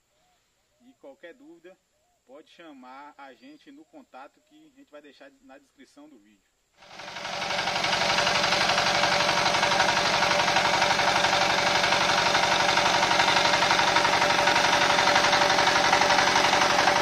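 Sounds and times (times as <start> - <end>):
diesel engine chugging: 6.8 - 17.0.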